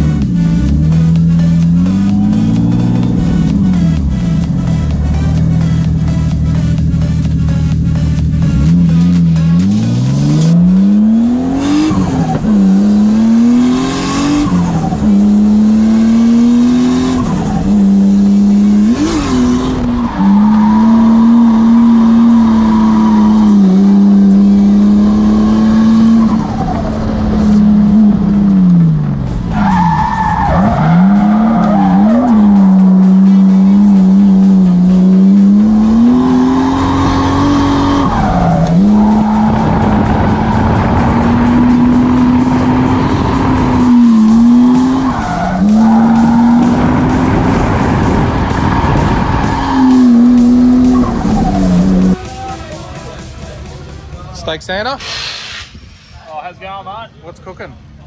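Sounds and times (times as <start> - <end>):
car engine revving: 0.0 - 53.6
tyres squealing: 29.4 - 34.0.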